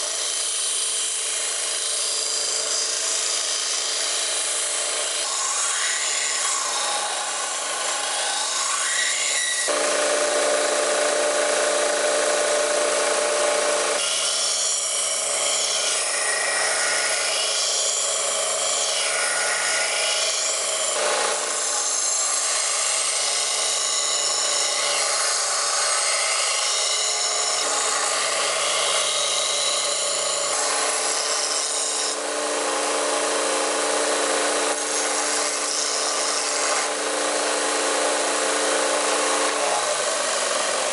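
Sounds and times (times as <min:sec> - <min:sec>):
belt sander grinding steel: 0:25.9 - 0:40.9.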